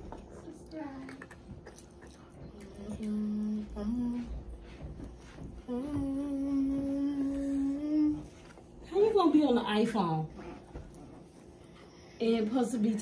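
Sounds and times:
person humming: 0:02.7 - 0:04.5, 0:05.6 - 0:08.3.

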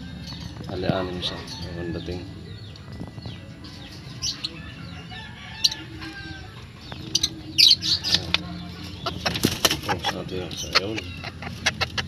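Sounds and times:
chickens clucking and chirping: 0:00.0 - 0:12.0
sharp chicken calls: 0:07.6 - 0:12.0.

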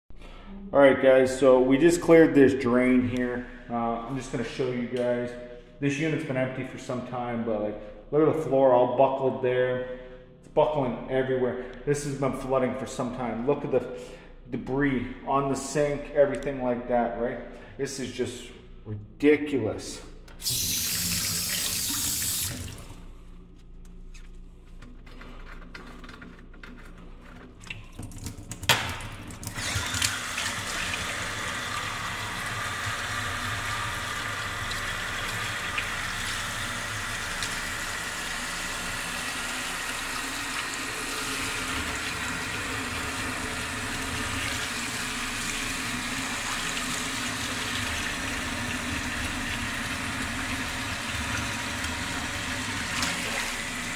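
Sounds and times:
tap water running into sink: 0:20.4 - 0:23.0, 0:27.6 - 0:53.9.

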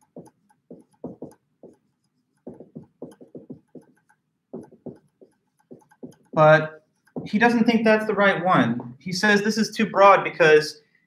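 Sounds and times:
marker squeaking on whiteboard: 0:00.0 - 0:08.1.

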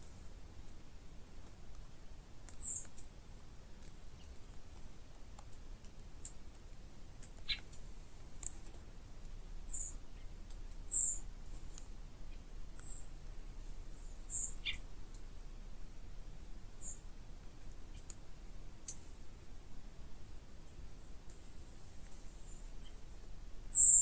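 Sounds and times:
low steady background hiss: 0:00.0 - 0:24.0
faint clicks: 0:01.4 - 0:03.1, 0:03.8 - 0:09.4, 0:17.7 - 0:18.2, 0:18.8 - 0:19.1
lower bird calls: 0:02.5 - 0:02.9, 0:07.4 - 0:07.7, 0:09.7 - 0:10.3, 0:10.9 - 0:11.3, 0:12.3 - 0:13.2, 0:14.2 - 0:14.9, 0:16.8 - 0:17.1, 0:23.7 - 0:24.0
high-pitched bird chirps: 0:09.7 - 0:10.0, 0:10.9 - 0:11.2, 0:14.3 - 0:14.8, 0:23.7 - 0:24.0.

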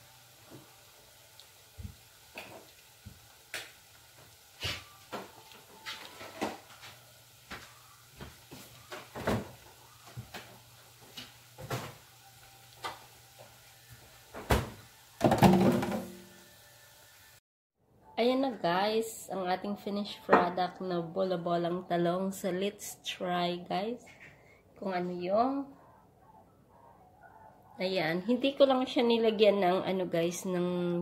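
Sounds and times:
food frying in hot oil: 0:00.0 - 0:17.4.

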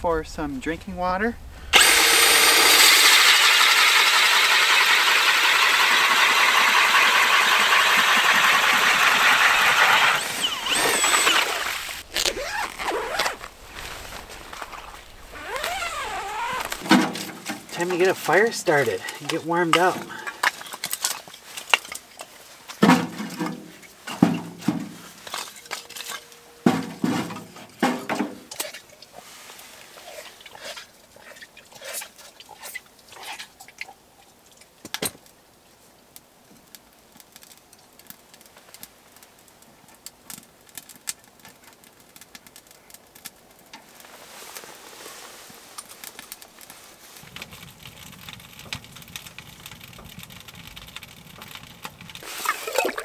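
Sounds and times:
small wood rustling: 0:05.5 - 0:35.4, 0:36.0 - 0:53.0
kindling sticks clattering: 0:16.5 - 0:29.1.

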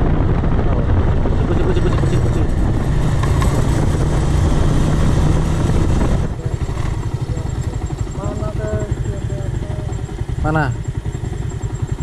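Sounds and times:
wind rushing: 0:00.0 - 0:08.2
motorcycle engine running: 0:00.0 - 0:12.0.

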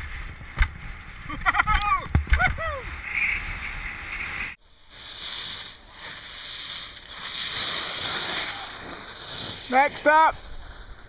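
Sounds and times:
skis scraping over snow: 0:03.4 - 0:11.0.

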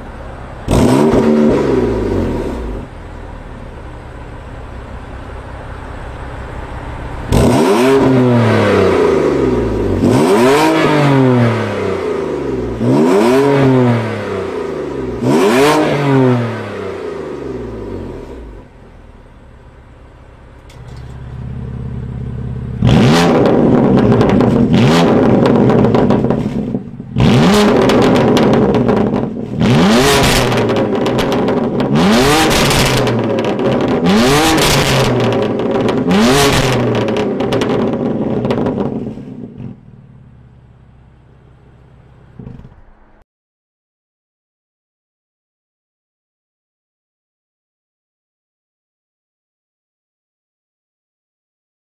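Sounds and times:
car engine revving: 0:00.0 - 0:43.2
exhaust crackling: 0:00.0 - 0:43.2.

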